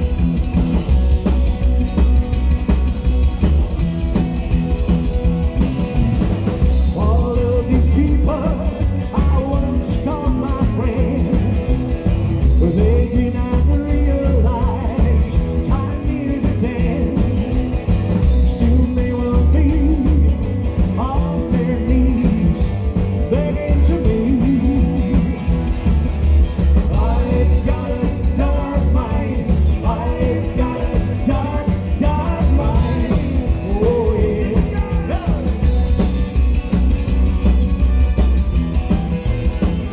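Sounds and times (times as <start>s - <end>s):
rockabilly band playing: 0.0s - 39.9s
man singing: 6.8s - 11.8s, 12.4s - 25.4s, 26.9s - 35.8s.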